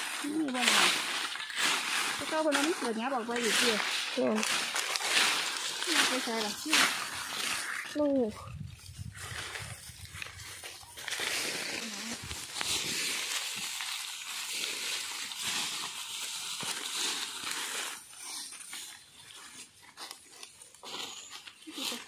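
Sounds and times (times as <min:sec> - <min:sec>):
footsteps crunching dry leaves: 0:00.0 - 0:22.0.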